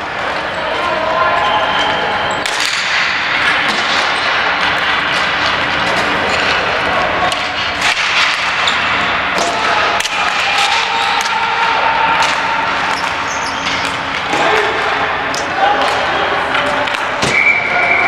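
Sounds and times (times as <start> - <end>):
ball hockey play noise: 0.0 - 18.0.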